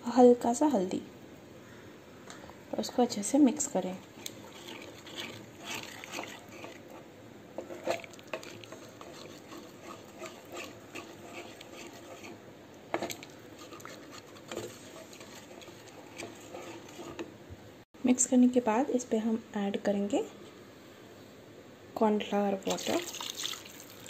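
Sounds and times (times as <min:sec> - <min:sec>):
liquid sloshing in a pan: 0:03.7 - 0:17.4, 0:22.7 - 0:24.0
spatula scraping a pan: 0:04.1 - 0:17.3.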